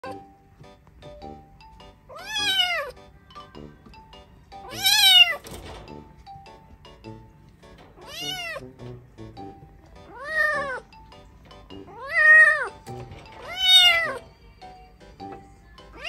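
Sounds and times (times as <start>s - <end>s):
kitten meowing: 2.1s - 3.0s, 4.6s - 5.4s, 8.0s - 8.6s, 10.1s - 10.9s, 11.9s - 12.8s, 13.4s - 14.2s.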